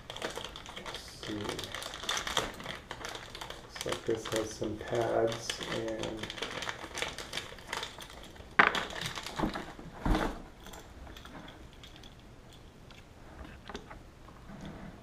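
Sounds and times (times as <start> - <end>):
small parts clicking: 0.0 - 9.6
plastic bag crinkling: 0.0 - 12.2.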